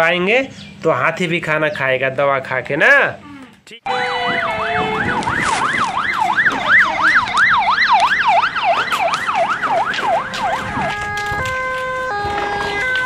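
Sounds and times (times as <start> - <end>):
wailing electronic siren: 3.9 - 13.0.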